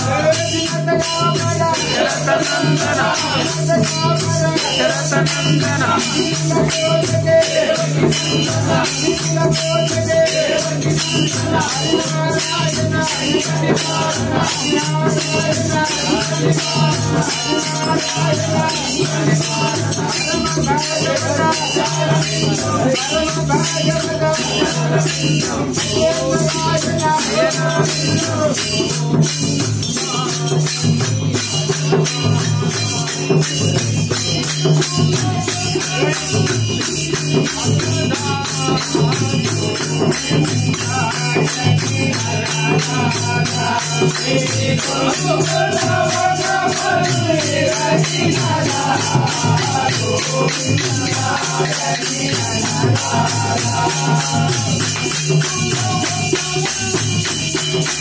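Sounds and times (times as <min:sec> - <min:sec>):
barrel drum: 0:00.0 - 0:58.0
hand cymbals clashing: 0:00.0 - 0:58.0
men singing together: 0:00.0 - 0:58.0.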